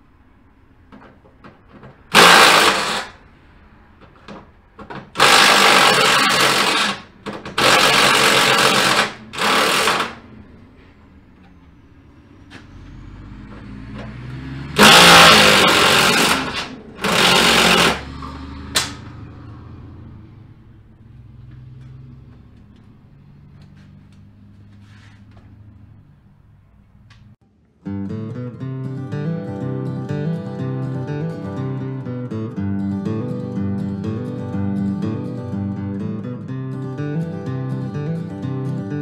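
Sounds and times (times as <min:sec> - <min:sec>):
parts clicking and knocking: 0:00.9 - 0:03.2, 0:03.9 - 0:11.8, 0:13.4 - 0:19.0
cordless power driver whirring: 0:02.1 - 0:03.2, 0:05.2 - 0:10.3, 0:14.8 - 0:18.1.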